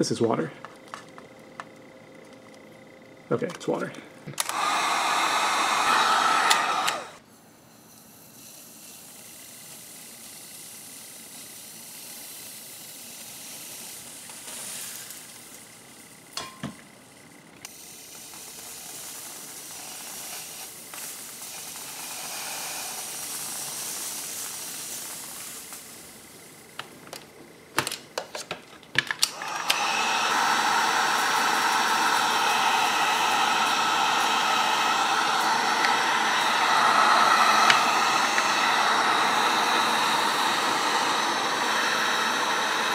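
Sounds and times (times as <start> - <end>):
heat gun blowing: 4.3 - 15.4, 17.6 - 26.4, 29.2 - 42.9.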